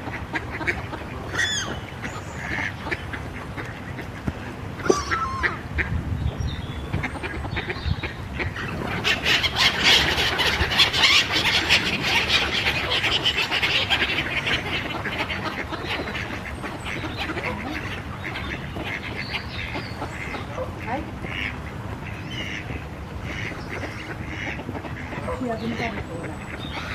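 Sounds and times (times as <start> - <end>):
ducks quacking: 0.0 - 26.9
gulls calling: 0.0 - 26.9.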